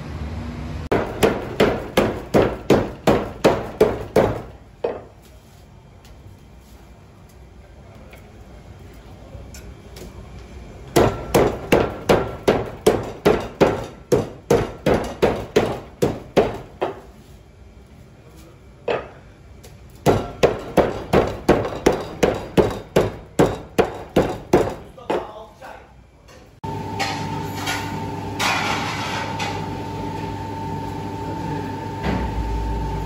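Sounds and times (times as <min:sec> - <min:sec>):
cleaver chopping on wooden board: 0:00.9 - 0:04.5.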